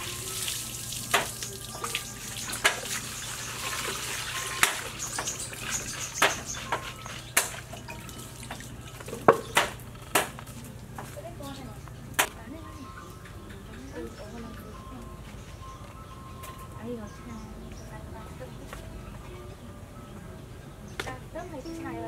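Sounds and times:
water splashing and dripping: 0:00.0 - 0:10.3
sharp splashes and knocks: 0:01.0 - 0:10.4.

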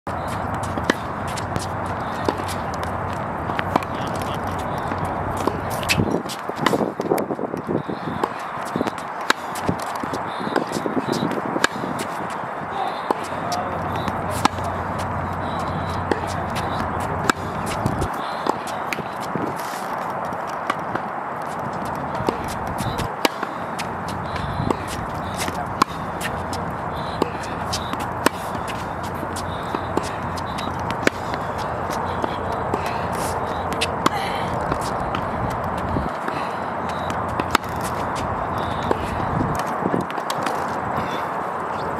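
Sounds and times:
balls bouncing on hard court: 0:00.1 - 0:41.3
steady background rush: 0:00.1 - 0:41.9
tennis balls hit with rackets: 0:00.1 - 0:41.9.

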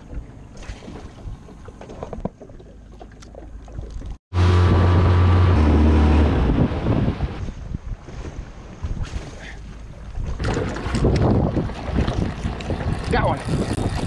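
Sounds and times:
water noise: 0:00.0 - 0:14.0
wind noise: 0:03.8 - 0:14.0.

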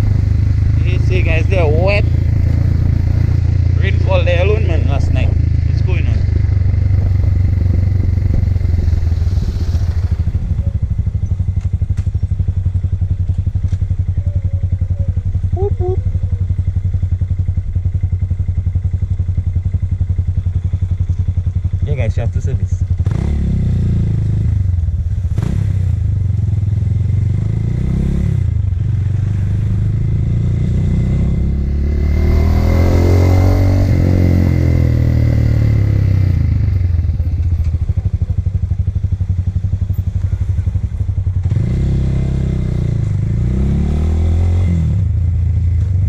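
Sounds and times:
wind noise: 0:00.0 - 0:11.3
motorcycle engine revving: 0:00.0 - 0:46.0.

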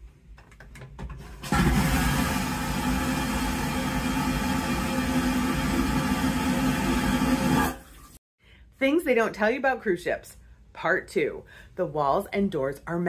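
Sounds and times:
vacuum toilet flushing: 0:01.2 - 0:08.2.

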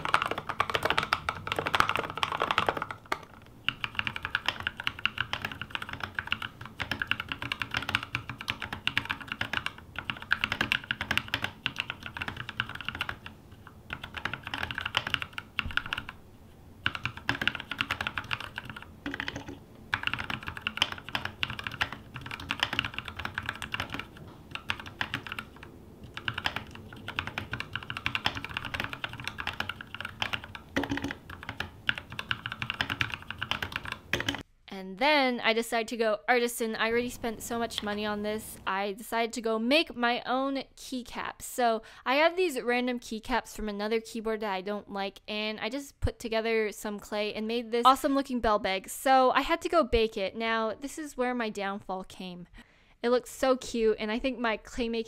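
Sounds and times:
mechanical keyboard typing: 0:00.0 - 0:16.2, 0:16.8 - 0:34.4.

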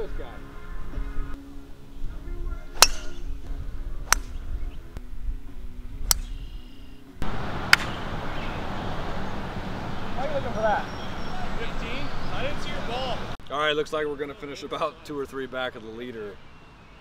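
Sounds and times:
soft background music: 0:00.0 - 0:07.3
outdoor ambient noise: 0:00.0 - 0:17.0
golf driver striking ball: 0:02.8 - 0:03.3, 0:07.6 - 0:08.2.

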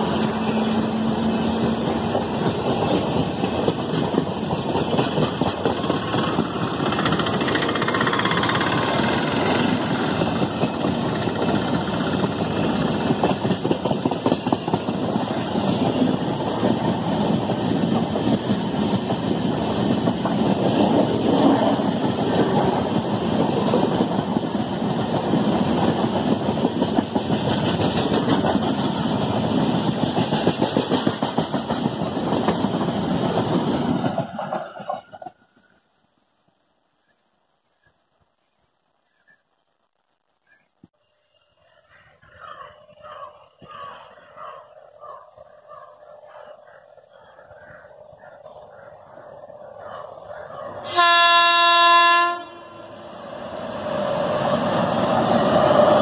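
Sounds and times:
train wheels rolling on rails: 0:00.0 - 0:35.9, 0:41.5 - 0:56.0
wheels clicking over rail joints: 0:01.5 - 0:35.7, 0:53.6 - 0:56.0.

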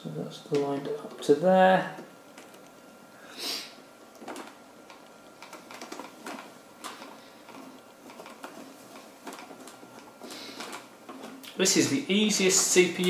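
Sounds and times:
faint clicks and taps: 0:01.9 - 0:02.8, 0:04.1 - 0:11.6.

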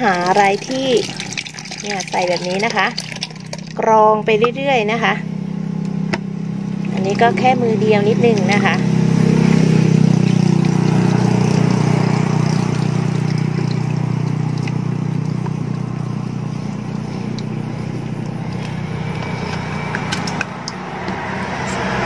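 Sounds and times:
wet squelching of rice squeezed: 0:00.0 - 0:03.8, 0:09.3 - 0:20.4
low machine hum: 0:00.0 - 0:22.0.

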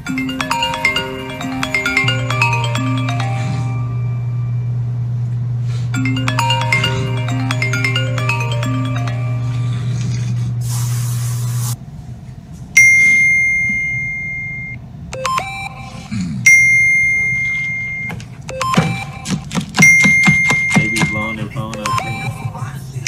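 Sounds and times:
steady low hum: 0:00.0 - 0:12.8
bell-like ding: 0:06.0 - 0:09.8, 0:12.8 - 0:14.8.

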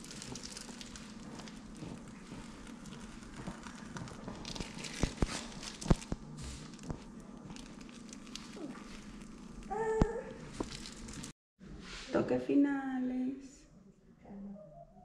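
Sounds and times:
grill fire crackling: 0:00.0 - 0:11.4.

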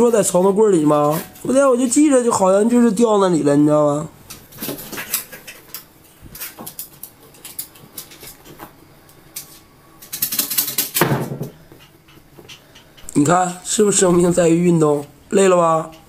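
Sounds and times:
claws clicking on wood: 0:04.3 - 0:08.6.

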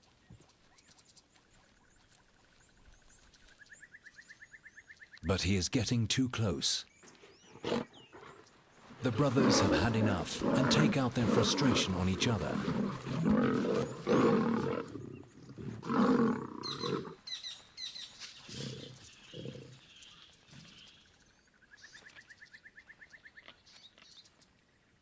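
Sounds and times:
lions snarling and roaring: 0:07.3 - 0:17.2, 0:18.4 - 0:19.9
low growls: 0:07.5 - 0:17.2.

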